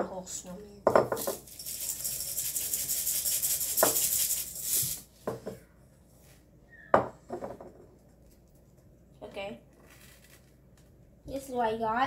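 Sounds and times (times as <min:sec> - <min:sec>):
sprinkles rattling onto cookie: 0:01.1 - 0:05.0.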